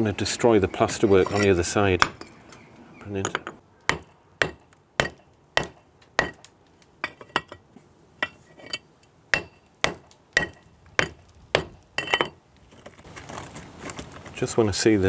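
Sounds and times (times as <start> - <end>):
hammer striking steel chisel: 3.3 - 6.4, 8.2 - 12.4.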